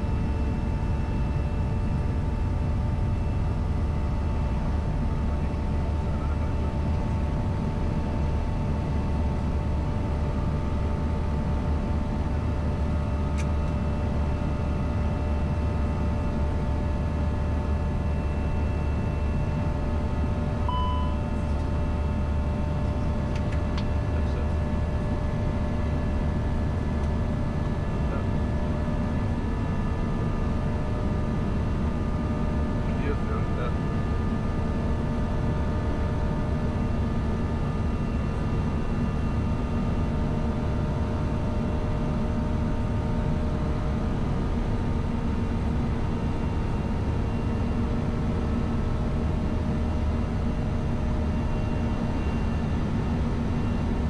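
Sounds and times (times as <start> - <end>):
engine and airflow rumble: 0.0 - 54.0
faint steady hum: 17.6 - 26.2
short beep: 20.7 - 21.4.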